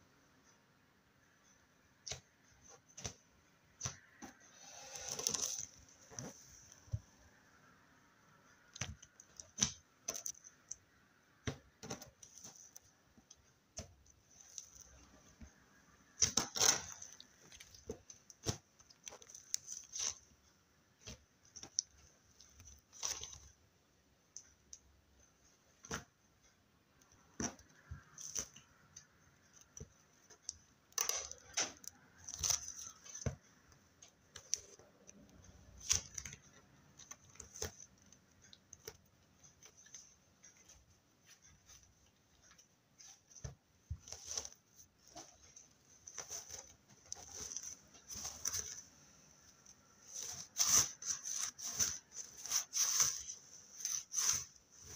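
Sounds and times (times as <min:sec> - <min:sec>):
slime clicking and crackling: 0:16.1 - 0:20.3.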